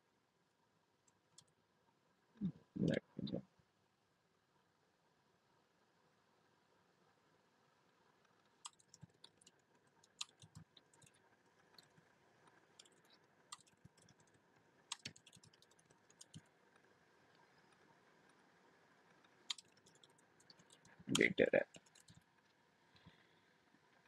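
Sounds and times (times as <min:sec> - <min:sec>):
typing on computer keyboard: 0:08.6 - 0:11.2, 0:12.8 - 0:16.5, 0:19.5 - 0:22.2.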